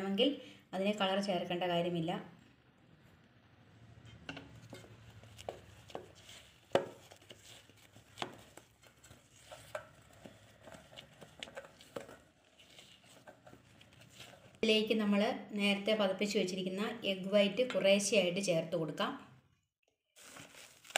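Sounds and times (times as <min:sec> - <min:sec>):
spatula stirring batter in metal bowl: 0:04.0 - 0:14.6.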